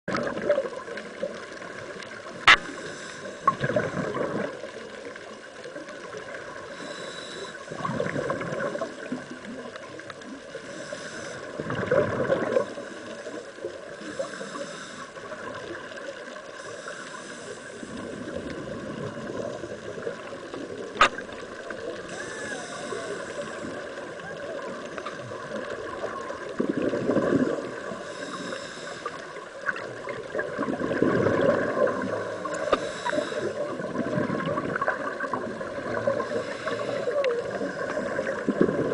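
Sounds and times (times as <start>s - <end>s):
exhaled bubbles gurgling: 0.1s - 38.9s
diver breathing through regulator: 2.5s - 4.2s, 6.6s - 8.0s, 10.6s - 11.7s, 12.6s - 15.3s, 16.6s - 18.2s, 22.0s - 24.0s, 27.8s - 29.5s, 31.8s - 33.8s, 35.9s - 38.5s.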